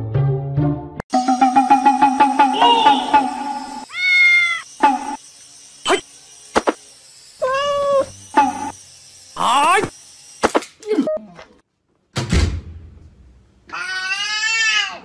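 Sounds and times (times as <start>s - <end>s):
cat meowing: 3.9s - 4.6s, 7.4s - 8.1s, 13.7s - 15.0s.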